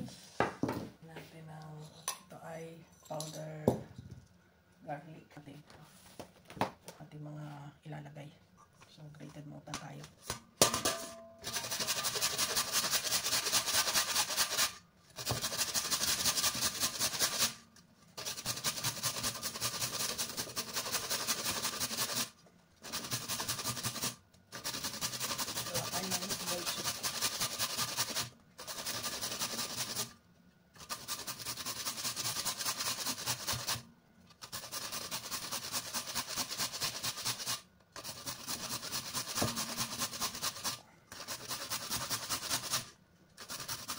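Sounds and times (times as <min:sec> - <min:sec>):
carrot rasping on grater: 0:11.4 - 0:17.6, 0:18.2 - 0:30.2, 0:30.8 - 0:43.9.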